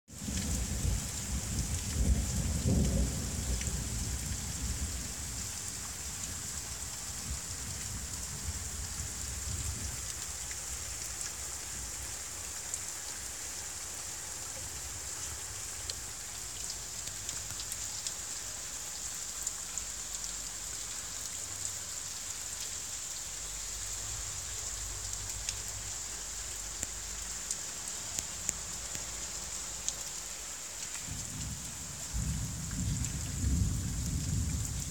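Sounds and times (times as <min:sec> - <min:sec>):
rain on a tiled roof: 0:00.0 - 0:34.9
thunder rumbling: 0:00.4 - 0:05.2, 0:31.1 - 0:34.9.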